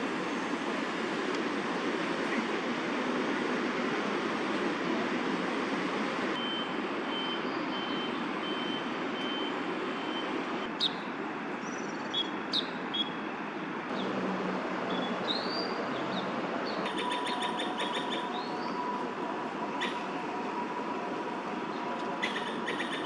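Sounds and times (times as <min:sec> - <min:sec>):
city traffic hum: 0:00.0 - 0:23.0
sharp bird calls: 0:14.9 - 0:18.9, 0:22.2 - 0:23.0.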